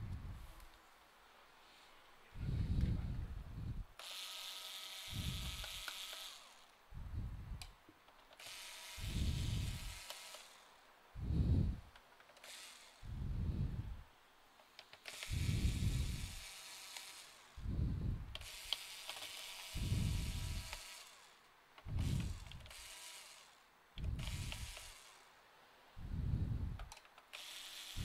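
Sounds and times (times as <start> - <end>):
person breathing: 1.6 - 3.8, 11.2 - 11.9, 13.0 - 14.0, 17.6 - 18.3, 26.0 - 26.8.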